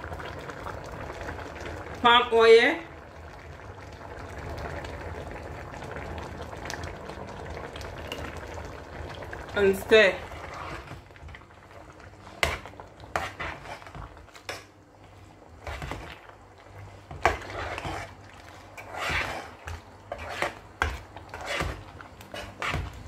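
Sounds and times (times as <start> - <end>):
metal ladle scraping pot: 10.2 - 11.1, 12.3 - 14.7, 15.5 - 16.3, 17.0 - 23.0.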